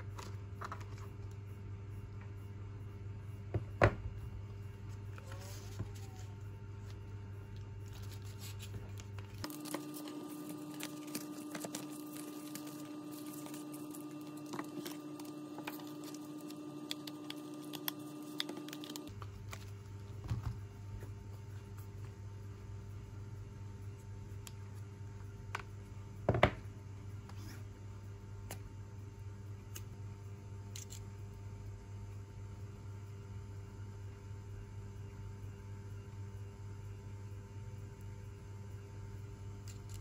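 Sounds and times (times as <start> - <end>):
low hum: 0.0 - 27.2.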